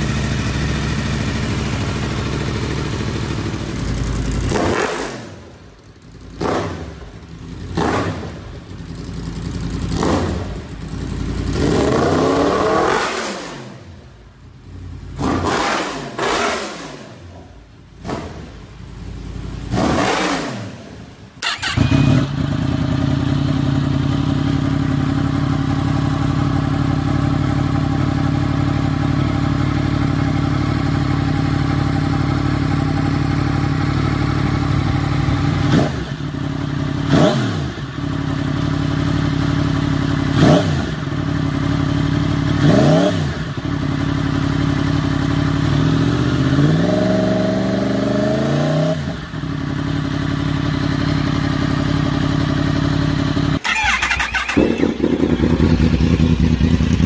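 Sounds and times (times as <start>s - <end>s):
motorcycle engine revving and idling: 0.0s - 57.0s.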